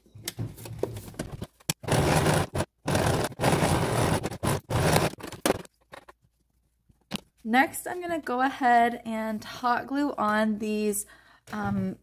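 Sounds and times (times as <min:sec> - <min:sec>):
electric sewing machine stitching: 0:01.8 - 0:05.6.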